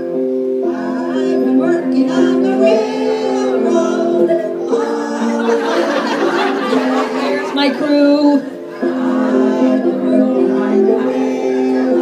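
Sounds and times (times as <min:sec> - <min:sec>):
held organ chords: 0:00.0 - 0:12.0
voices: 0:04.8 - 0:12.0.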